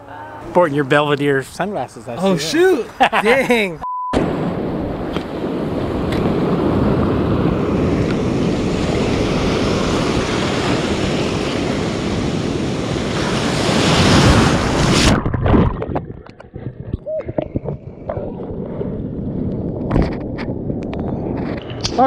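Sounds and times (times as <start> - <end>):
wind on microphone: 4.4 - 22.0
surf rushing over rocks: 5.0 - 16.0.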